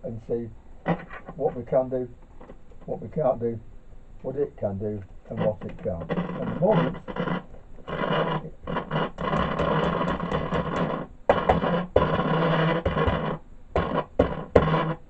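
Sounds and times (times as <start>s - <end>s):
distorted radio output: 0.0s - 3.6s, 4.2s - 15.0s
steady hum: 0.0s - 15.0s.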